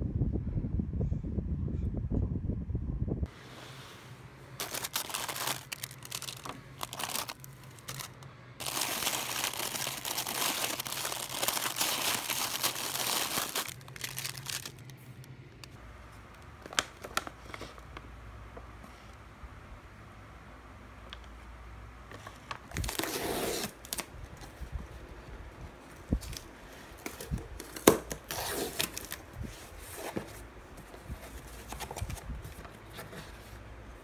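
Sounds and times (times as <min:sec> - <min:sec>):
plastic wrappers crinkling: 0:04.6 - 0:18.0, 0:22.6 - 0:24.6.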